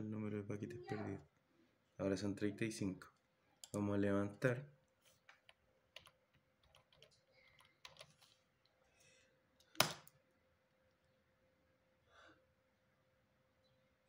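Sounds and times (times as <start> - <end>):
faint steady hum: 0.0 - 14.0
keyboard keys tapping: 5.3 - 8.2.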